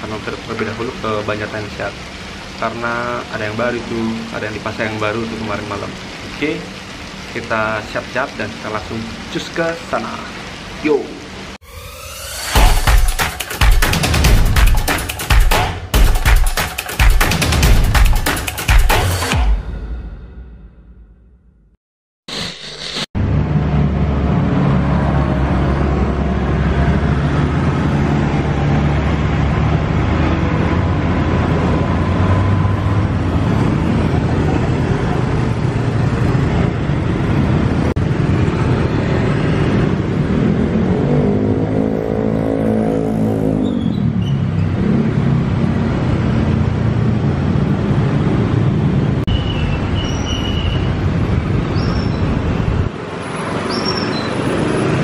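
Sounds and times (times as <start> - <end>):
louder engine rising and falling: 11.6 - 14.7, 22.3 - 35.6
short high squeaks: 22.3 - 23.1, 49.4 - 50.9
vehicle engine hum and road noise: 22.8 - 55.0.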